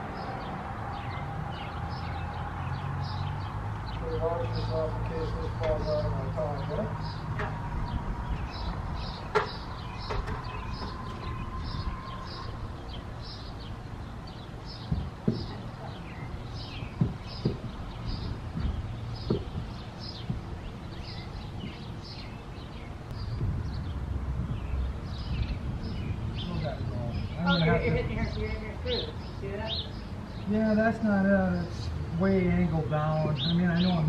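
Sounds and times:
wind on microphone: 7.0s - 28.7s
sharp wooden knocks: 8.6s - 11.3s, 14.8s - 16.0s, 16.6s - 20.8s.

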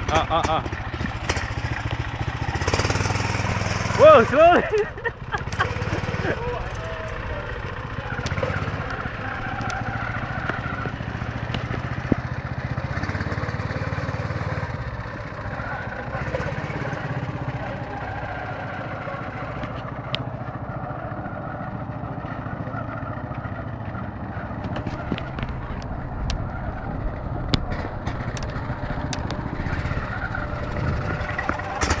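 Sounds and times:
sharp clicks and knocks: 0.0s - 2.0s, 27.5s - 29.5s
buggy engine running: 0.0s - 32.0s.

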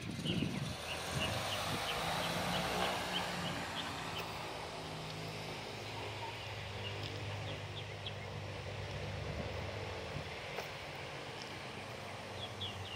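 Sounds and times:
low engine hum: 0.0s - 12.9s.

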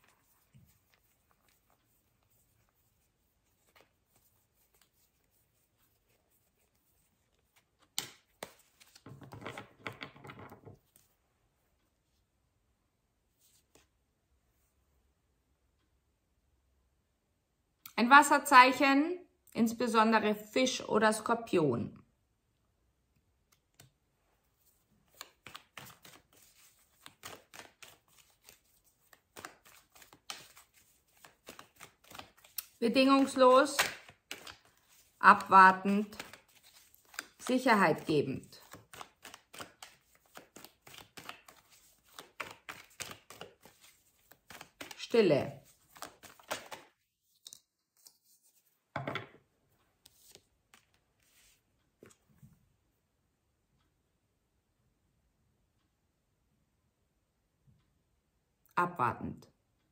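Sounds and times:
cards being shuffled: 0.0s - 11.1s, 24.6s - 48.7s, 50.0s - 52.2s.

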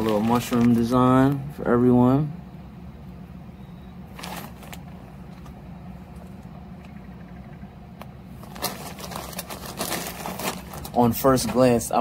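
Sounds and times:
plastic bag crinkling: 0.0s - 0.9s, 4.1s - 5.0s, 8.4s - 11.6s
steady low hum: 0.0s - 12.0s.

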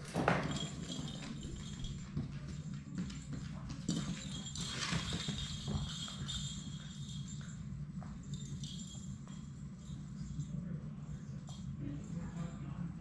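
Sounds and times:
puppies scuffing and tapping: 0.0s - 8.9s
low room hum: 0.0s - 13.0s.

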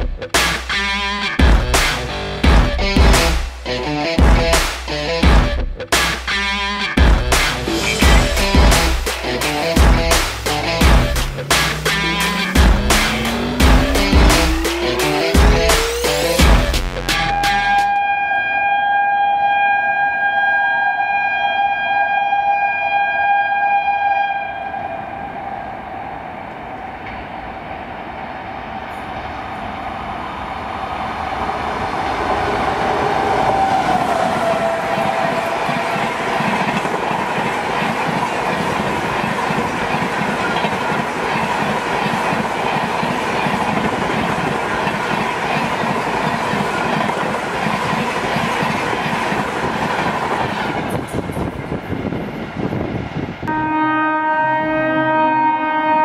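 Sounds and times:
train wheels clickety-clack: 7.0s - 17.9s, 32.2s - 53.5s
train horn: 17.3s - 25.8s, 32.4s - 37.4s, 53.4s - 56.0s.

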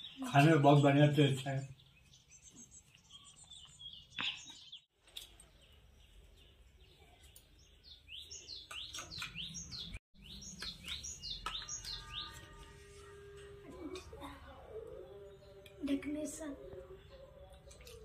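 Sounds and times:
birds chirping: 0.0s - 12.6s.

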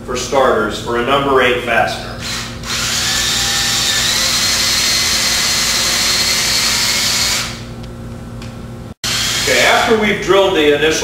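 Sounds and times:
cordless drill boring into wood: 2.2s - 7.6s, 9.0s - 9.9s.

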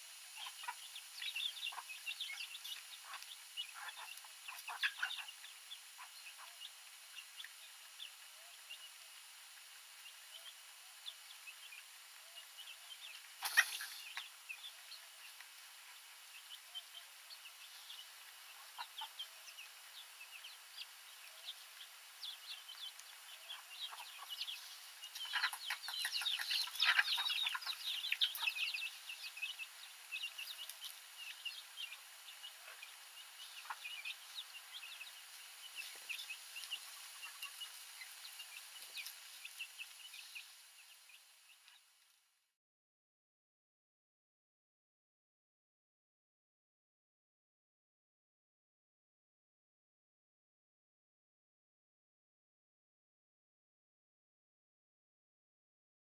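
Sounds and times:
chickens clucking and peeping: 0.0s - 42.1s.

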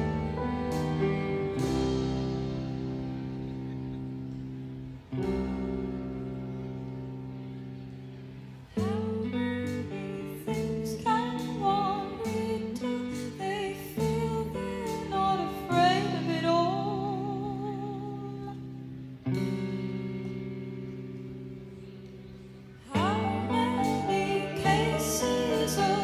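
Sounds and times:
plucked chords: 0.0s - 26.0s
woman singing with vibrato: 8.8s - 18.6s, 22.9s - 26.0s.

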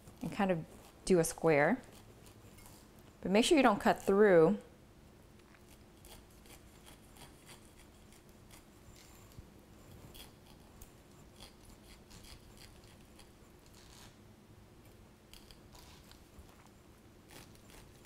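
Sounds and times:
knife crunching through pineapple: 5.4s - 14.2s, 15.3s - 18.0s.

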